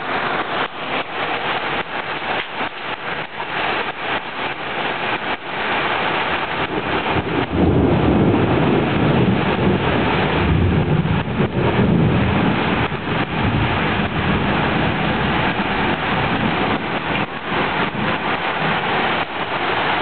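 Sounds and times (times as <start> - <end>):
heavy rain pouring: 0.0 - 20.0
thunder rumbling: 6.4 - 20.0.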